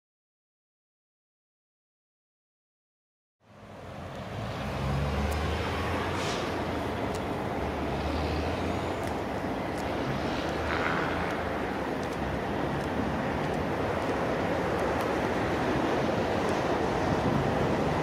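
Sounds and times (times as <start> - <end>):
freight train rumbling by: 3.8 - 18.0
faint clicks: 5.3 - 5.5, 9.0 - 15.1.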